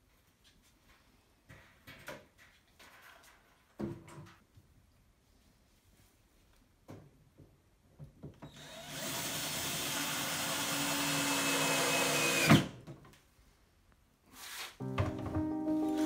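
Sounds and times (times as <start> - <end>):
cordless drill driving screw: 8.5 - 12.7.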